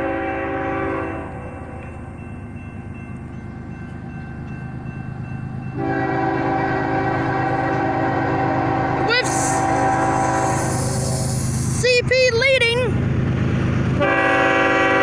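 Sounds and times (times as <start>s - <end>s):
locomotive air horn: 0.0s - 1.7s, 5.8s - 11.4s, 14.0s - 15.0s
low rumble of train: 0.0s - 15.0s.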